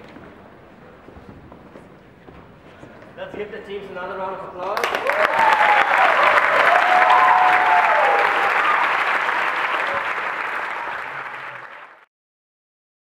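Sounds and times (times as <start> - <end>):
large audience applauding: 4.7 - 12.1.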